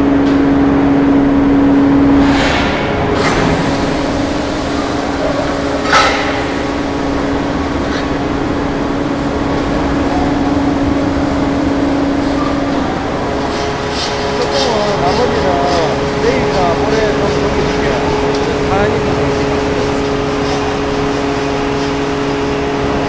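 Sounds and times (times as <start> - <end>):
press machine hum: 0.0 - 23.0
sharp metallic clank: 5.8 - 6.8.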